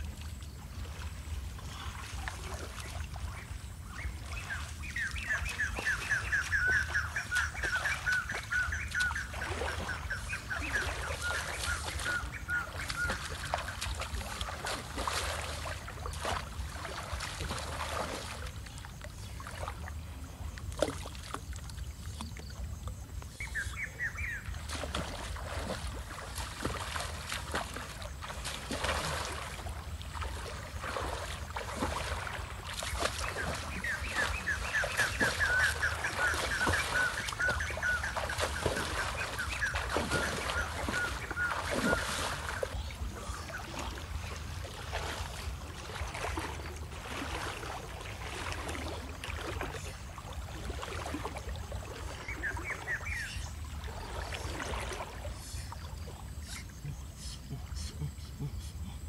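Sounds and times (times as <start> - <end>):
wading and splashing in water: 0.0 - 59.0
bird calling repeated notes: 4.0 - 14.0, 32.8 - 43.7.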